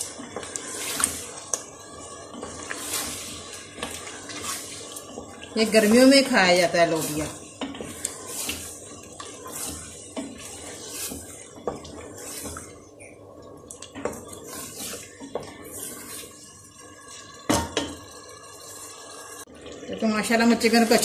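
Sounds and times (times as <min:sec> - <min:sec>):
chicken sizzling in pot: 0:00.0 - 0:21.0.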